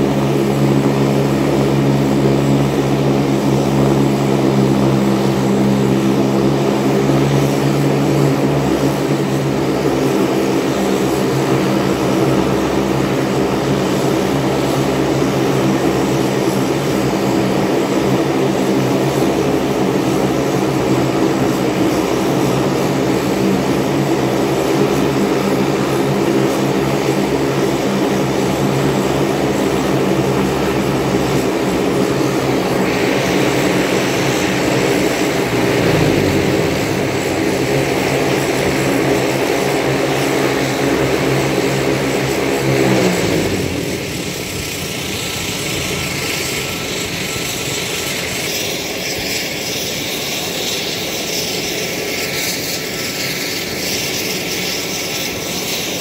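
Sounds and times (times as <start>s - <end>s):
propeller engine drone: 0.0s - 56.0s
turbine hiss: 30.2s - 56.0s.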